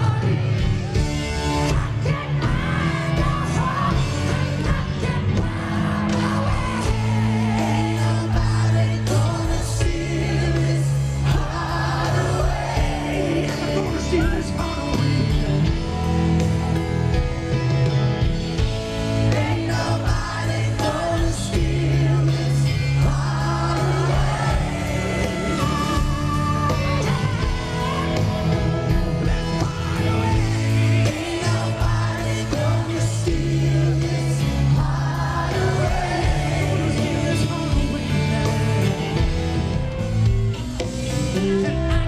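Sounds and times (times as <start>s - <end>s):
man singing lead: 0.0s - 16.8s, 19.2s - 39.6s
live rock band playing: 0.0s - 42.0s.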